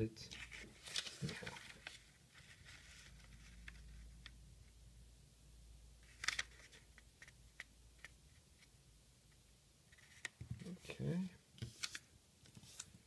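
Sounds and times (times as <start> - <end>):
paper rustling and crinkling: 0.4 - 3.9.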